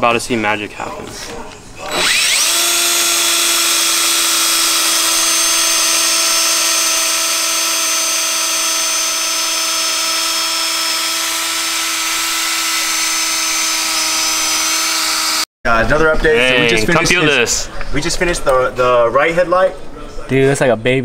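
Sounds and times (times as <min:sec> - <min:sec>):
cordless drill motor whining: 0:01.8 - 0:15.5.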